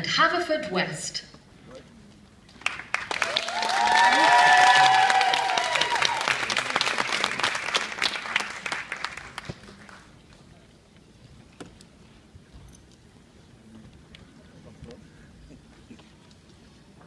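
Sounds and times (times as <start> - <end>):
audience applauding: 2.5 - 10.2
high whoops: 3.2 - 6.4.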